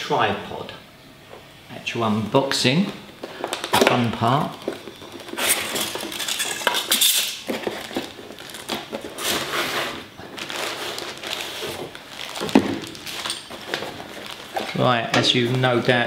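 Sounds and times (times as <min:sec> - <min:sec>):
plastic bag crinkling: 0:03.0 - 0:16.0
cardboard box rustling and scraping: 0:06.8 - 0:14.7.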